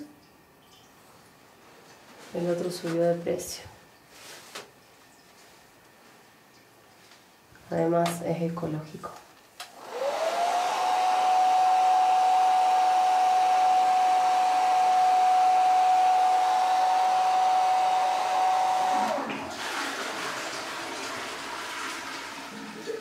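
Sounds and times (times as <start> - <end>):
hair dryer whining: 9.6 - 20.3.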